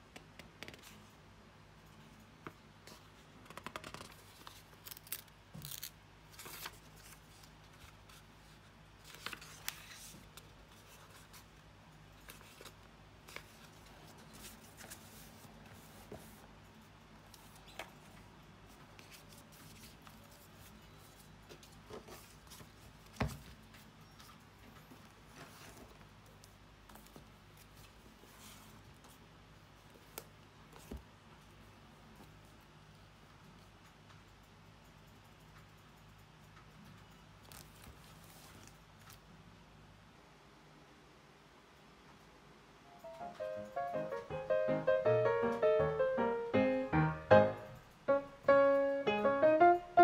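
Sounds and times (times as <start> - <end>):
notebook pages rustling: 2.9 - 11.6, 12.2 - 16.5, 17.3 - 23.9, 25.0 - 29.2, 37.4 - 39.2.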